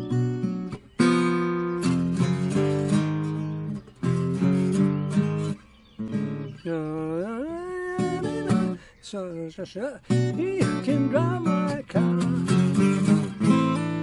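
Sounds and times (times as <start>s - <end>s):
fingerstyle acoustic guitar: 0.0s - 14.0s.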